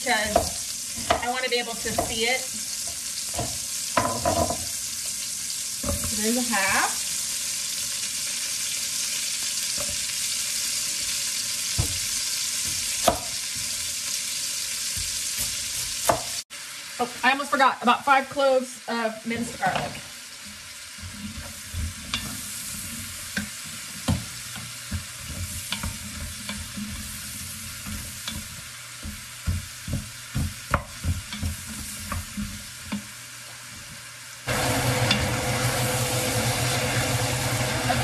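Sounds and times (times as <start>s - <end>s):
vegetables sizzling in a pot: 0.0s - 38.0s
wooden spoon knocking a pot: 0.2s - 2.2s, 27.8s - 33.0s
loud steady hiss with hum: 34.2s - 38.0s.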